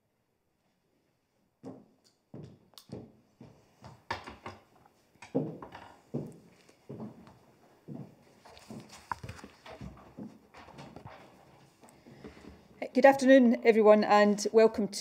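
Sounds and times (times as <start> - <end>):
footsteps on hard floor: 1.6 - 4.5, 5.2 - 12.7.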